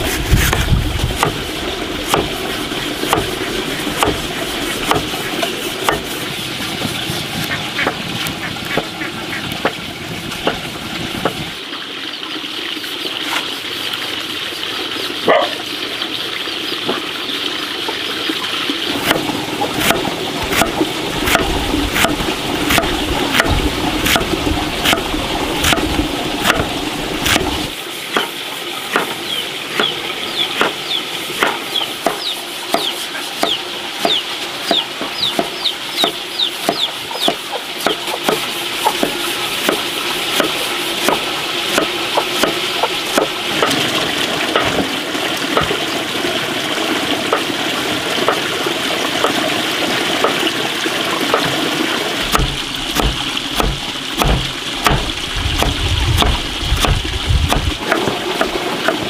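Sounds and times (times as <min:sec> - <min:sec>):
knife chopping on wooden block: 0:02.1 - 0:02.3, 0:03.1 - 0:03.3, 0:04.0 - 0:04.2, 0:04.8 - 0:05.1, 0:05.8 - 0:06.2, 0:25.6 - 0:27.5, 0:28.9 - 0:29.1, 0:31.4 - 0:39.8, 0:40.4 - 0:43.8, 0:52.3 - 0:59.0
chickens clucking: 0:07.4 - 0:09.6, 0:30.6 - 0:39.3.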